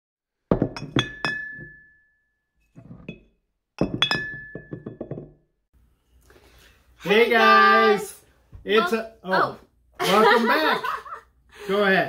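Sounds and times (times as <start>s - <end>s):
glassy clinks and knocks: 0.5s - 2.1s, 2.7s - 5.4s.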